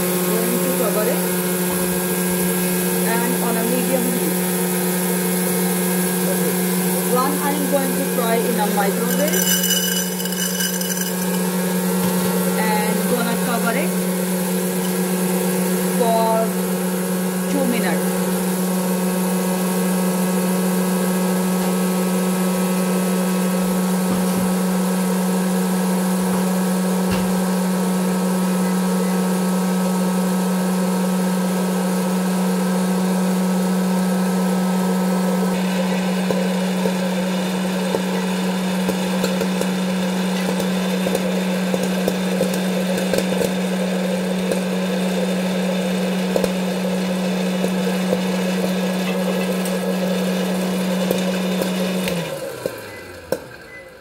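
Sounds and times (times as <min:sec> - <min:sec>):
popcorn maker fan hum: 0:00.0 - 0:54.0
popcorn kernels popping: 0:08.7 - 0:12.6, 0:36.2 - 0:44.7.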